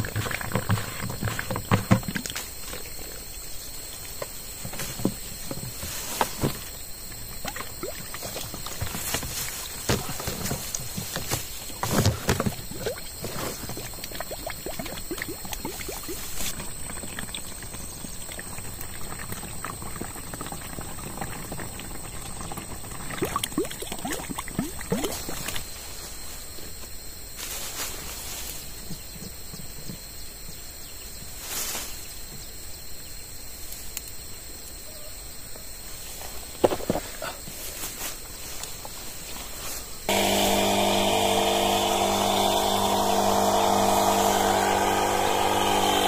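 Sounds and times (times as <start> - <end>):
water splashing into plastic tank: 7.3 - 10.8, 11.8 - 25.6.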